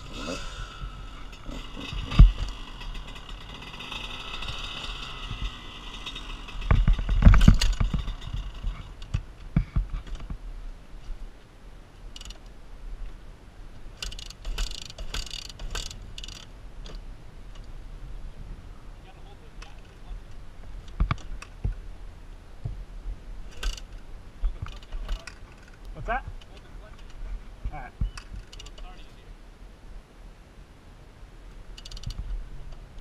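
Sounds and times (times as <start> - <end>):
dirt bike engine running: 0.0 - 10.3, 13.9 - 16.5.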